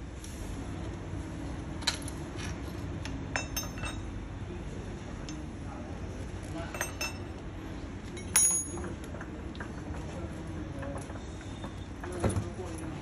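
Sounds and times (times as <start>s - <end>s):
small metal hardware clinking: 3.3s - 4.1s, 6.7s - 7.4s, 8.1s - 9.9s.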